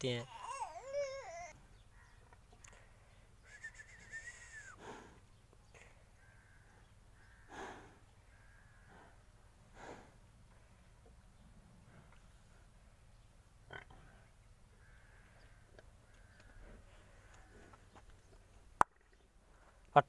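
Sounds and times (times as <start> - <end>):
high wavering animal call: 3.4 - 4.8
buffalo breathing hard: 4.8 - 6.2, 7.3 - 8.1, 8.7 - 10.9, 11.7 - 12.8.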